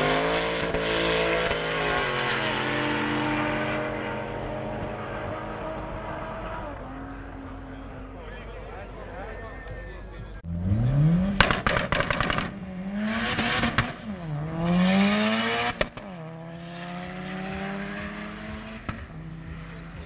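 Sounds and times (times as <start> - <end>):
drag car engine revving: 10.4 - 20.0
crackling pops: 11.4 - 12.6.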